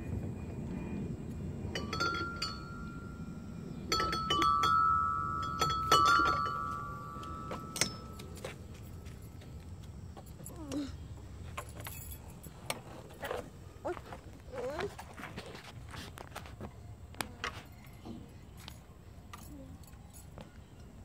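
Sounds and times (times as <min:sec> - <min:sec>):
clanks on metal playground equipment: 0:01.6 - 0:03.2, 0:03.8 - 0:08.9.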